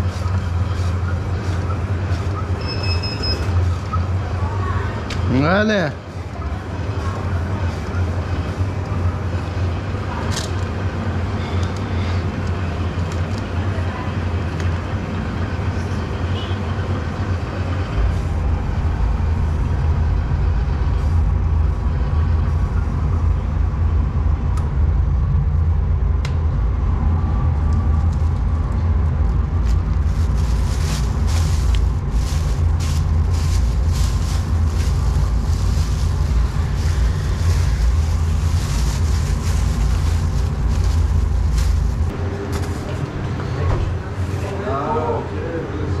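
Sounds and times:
low machine hum: 5.9 - 46.0
plastic bag crinkling: 30.0 - 42.1.

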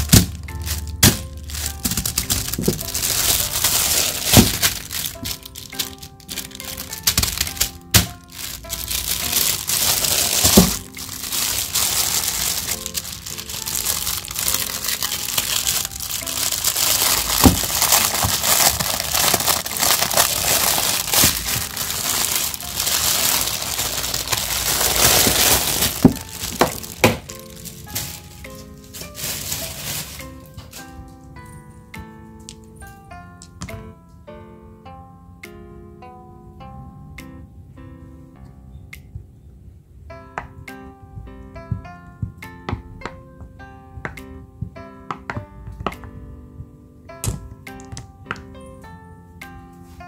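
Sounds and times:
plastic wrapping crinkling: 0.0 - 31.6
soft background music: 0.0 - 50.0.

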